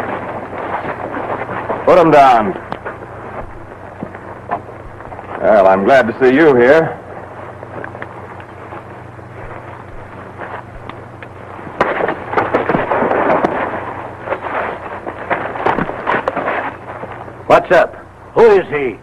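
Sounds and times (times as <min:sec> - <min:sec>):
film soundtrack hiss and hum: 0:00.0 - 0:19.0
rough noise with knocks and clicks: 0:09.4 - 0:17.2.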